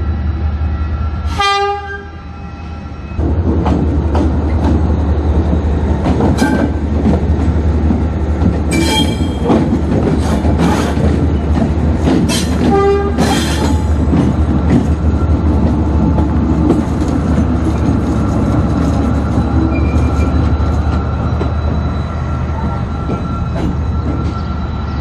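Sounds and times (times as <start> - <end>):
train rumbling past: 0.0 - 25.0
train horn blast: 1.3 - 2.8, 12.6 - 13.7.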